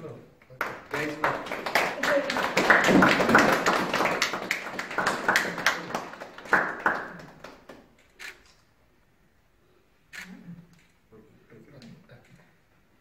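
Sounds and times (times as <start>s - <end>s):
small group clapping: 0.5s - 8.4s.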